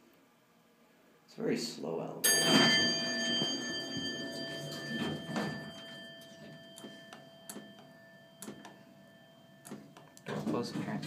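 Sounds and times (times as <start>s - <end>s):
elevator bell ringing: 2.2s - 10.7s.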